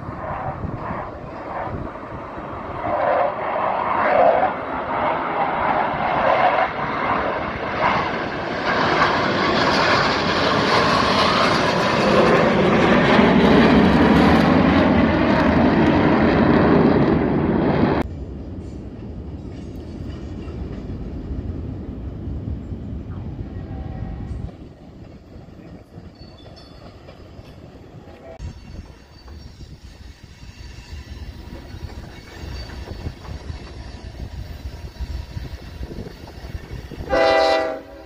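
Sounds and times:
jet engines roaring: 0:00.0 - 0:18.6.

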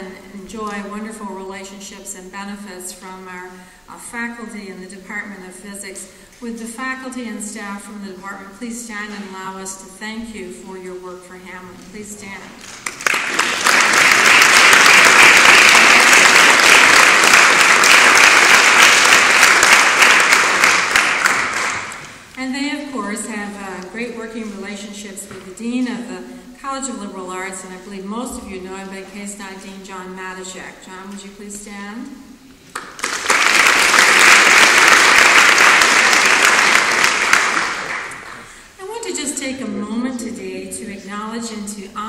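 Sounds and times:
audience applauding: 0:12.6 - 0:22.2, 0:32.7 - 0:38.5.

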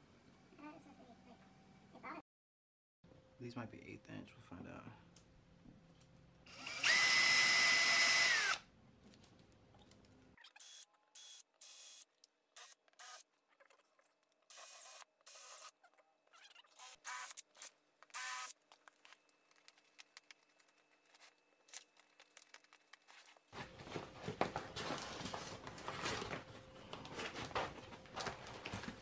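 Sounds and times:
cordless drill bursts: 0:06.5 - 0:08.6, 0:18.1 - 0:18.5.

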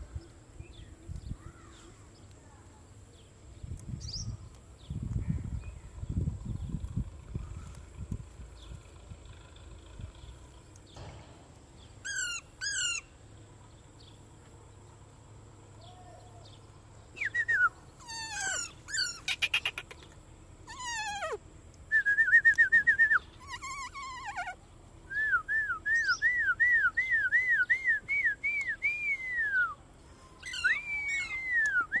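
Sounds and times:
parrot whistling and calling: 0:12.0 - 0:13.1, 0:17.2 - 0:20.0, 0:20.7 - 0:21.4, 0:22.2 - 0:25.3, 0:30.4 - 0:32.0.

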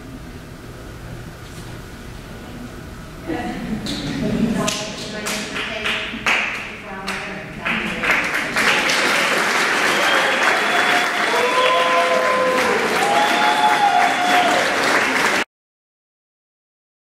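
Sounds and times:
audience applauding: 0:07.6 - 0:15.5
people cheering: 0:08.5 - 0:15.5.

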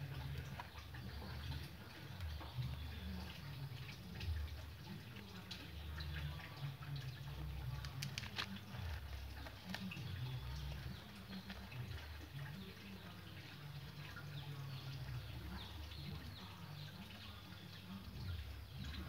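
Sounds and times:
grains clicking and crunching: 0:07.7 - 0:12.4.

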